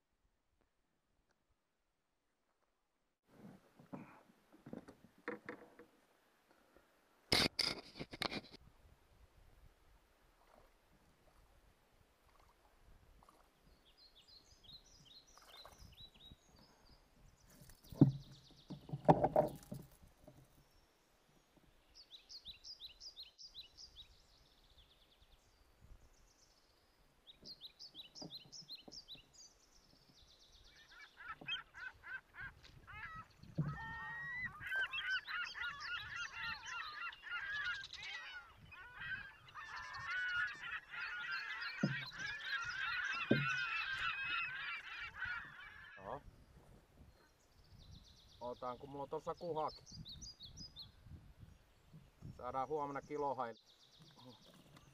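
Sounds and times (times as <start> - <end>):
flock of birds calling: 30.7 - 46.3
dull knocks: 43.3 - 43.6.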